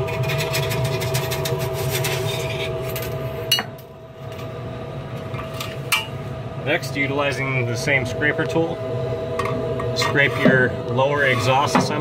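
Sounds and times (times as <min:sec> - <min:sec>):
exhaust blower hum and whine: 0:00.0 - 0:12.0.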